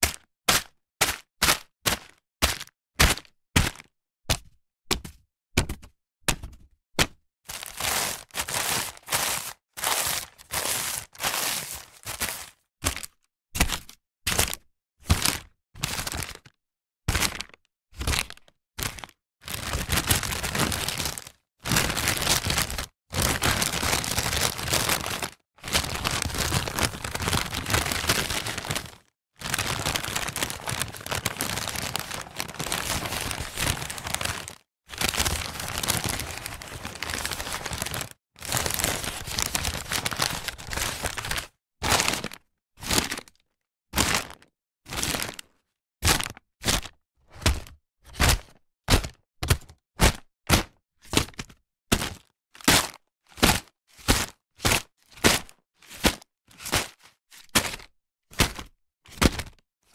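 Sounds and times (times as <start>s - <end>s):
paper bag crinkling: 7.5s - 12.5s, 19.6s - 41.4s.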